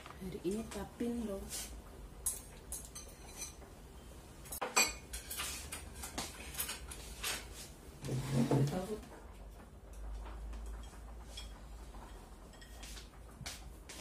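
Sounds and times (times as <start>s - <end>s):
chopsticks and bowls clinking: 2.2s - 3.7s, 4.4s - 7.4s.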